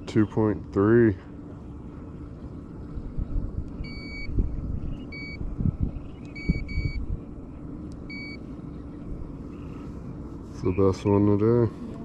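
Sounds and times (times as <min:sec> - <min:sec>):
short electronic beeps: 0:03.8 - 0:04.3, 0:05.1 - 0:05.4, 0:06.3 - 0:07.0, 0:08.1 - 0:08.4.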